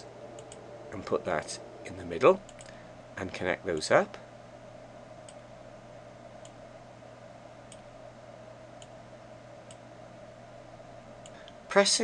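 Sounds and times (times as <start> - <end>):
faint steady hum: 0.0 - 12.0
computer mouse clicks: 0.4 - 0.6, 2.5 - 2.8, 7.7 - 7.9.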